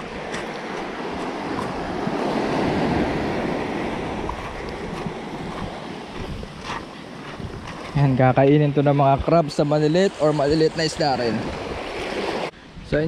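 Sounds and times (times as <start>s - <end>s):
waves breaking on pebble shore: 0.0s - 8.1s.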